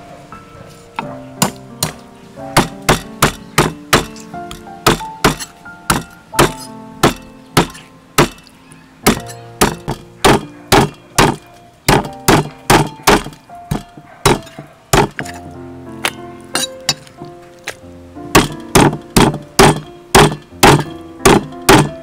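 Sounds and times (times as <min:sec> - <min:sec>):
background music: 0:00.0 - 0:22.0
cleaver chopping on wooden board: 0:01.4 - 0:02.0, 0:02.6 - 0:08.4, 0:09.0 - 0:15.4, 0:18.3 - 0:22.0.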